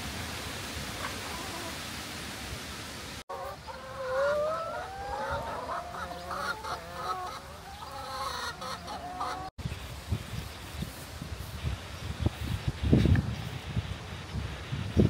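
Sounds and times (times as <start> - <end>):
chickens clucking and calling: 3.2 - 9.6.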